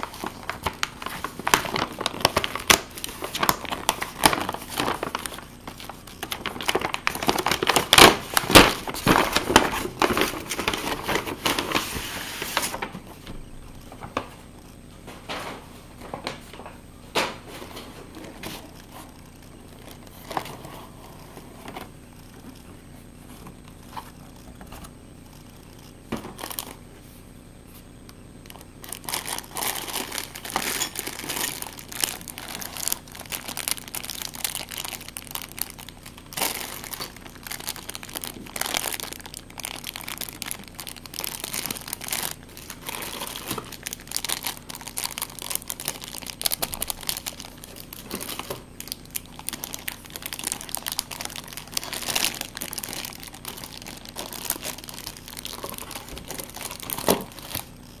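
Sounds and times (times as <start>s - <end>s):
plastic bags crinkling: 0.0s - 13.1s, 23.8s - 26.8s, 28.4s - 58.0s.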